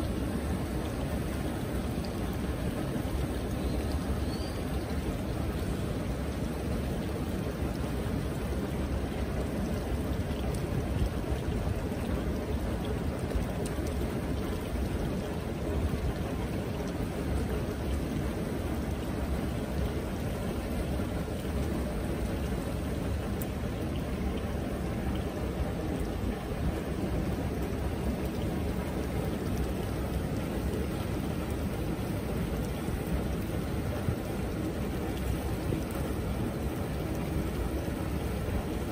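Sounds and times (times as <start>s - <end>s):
running water rushing: 0.0s - 38.9s.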